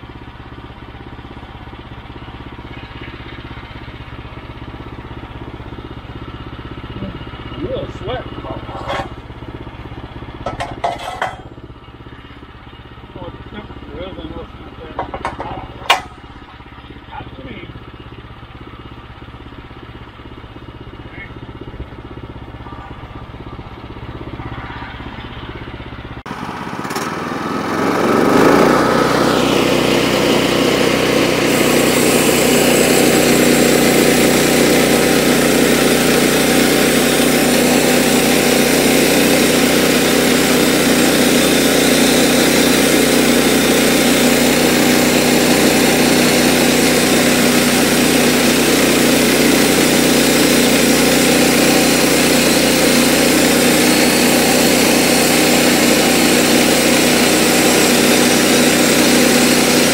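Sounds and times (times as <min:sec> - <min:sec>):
sawmill engine running: 0:00.0 - 0:59.9
band saw blade cutting timber: 0:08.5 - 0:09.2, 0:10.4 - 0:11.5, 0:26.3 - 0:59.9.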